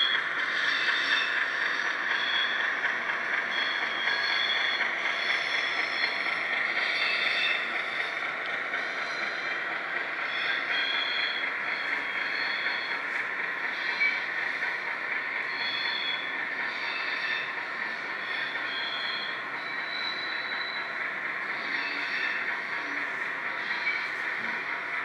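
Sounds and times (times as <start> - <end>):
high-pitched wheel squeals: 0.0 - 2.7, 3.4 - 8.1, 10.2 - 13.1, 15.5 - 24.6.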